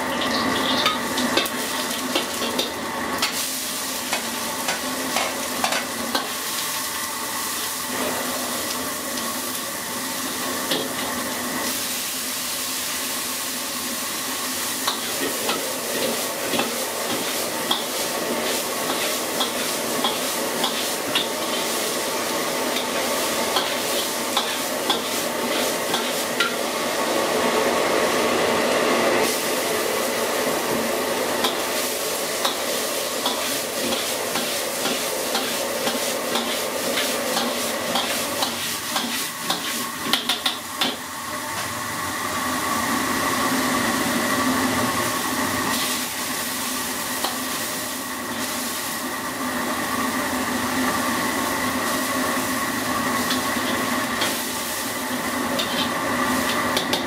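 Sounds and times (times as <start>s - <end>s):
vegetables sizzling in a wok: 0.0s - 57.0s
metal ladle scraping a wok: 55.5s - 57.0s.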